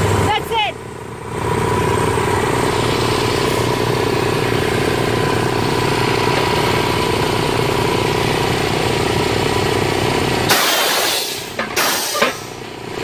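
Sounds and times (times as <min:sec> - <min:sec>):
post driver hammering piling: 0:10.5 - 0:12.5.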